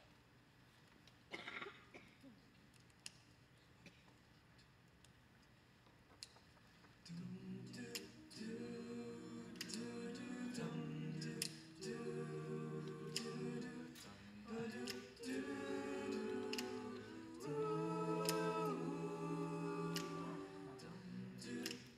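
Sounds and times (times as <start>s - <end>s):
vocal group singing harmony: 7.1s - 21.9s
singers breathing: 14.0s - 15.2s.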